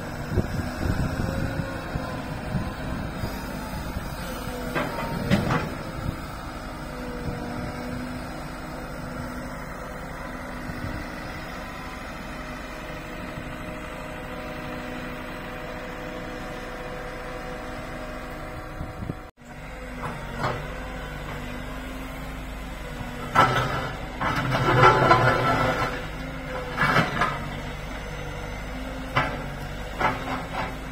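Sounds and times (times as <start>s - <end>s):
diesel engine running: 0.0s - 30.9s.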